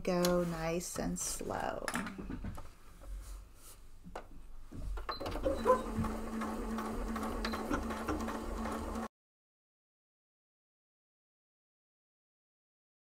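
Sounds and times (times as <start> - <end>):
electric sewing machine stitching: 5.2 - 9.1.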